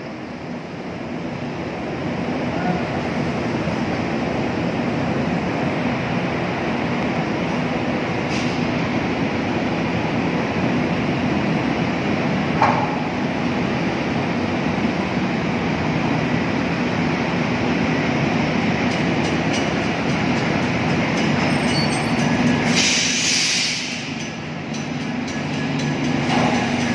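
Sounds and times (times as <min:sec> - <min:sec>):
diesel tractor rumble: 0:00.0 - 0:26.9
metallic clank: 0:23.9 - 0:26.9.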